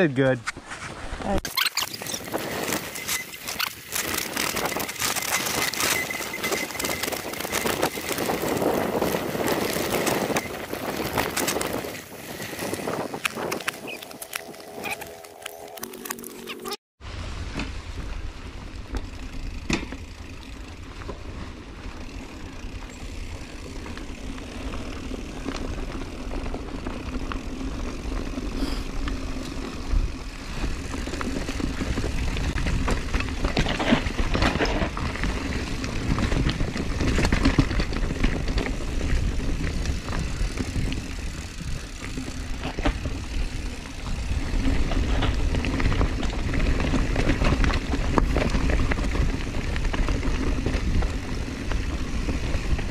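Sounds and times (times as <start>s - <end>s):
tyre noise on dirt: 0.5s - 52.9s
bike knocks and rattles: 1.5s - 15.0s, 18.8s - 22.2s, 29.2s - 52.9s
wind rumble on microphone: 4.1s - 15.1s, 29.4s - 52.9s.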